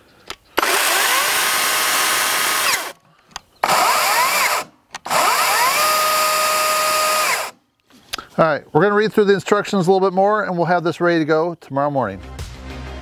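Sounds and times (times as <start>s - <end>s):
electric chainsaw motor whine: 0.6s - 3.0s, 3.6s - 7.6s.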